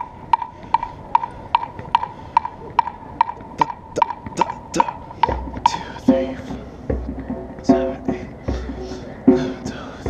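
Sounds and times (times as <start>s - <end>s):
metronome clicking: 0.0s - 4.9s.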